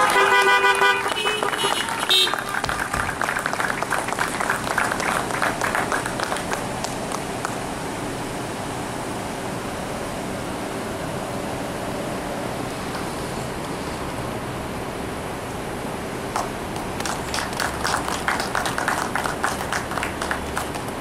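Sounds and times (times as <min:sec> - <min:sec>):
crowd clapping and cheering: 0:00.0 - 0:07.6, 0:16.3 - 0:21.0.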